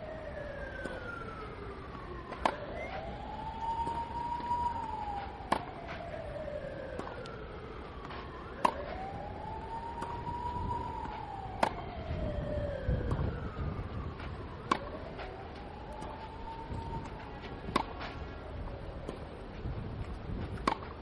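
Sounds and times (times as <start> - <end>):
siren wailing: 0.0 - 20.9
racket hitting tennis ball: 2.3 - 2.7, 3.8 - 4.0, 5.5 - 6.0, 8.0 - 8.9, 10.0 - 10.2, 10.8 - 11.8, 14.2 - 15.3, 17.1 - 18.3, 20.4 - 21.0.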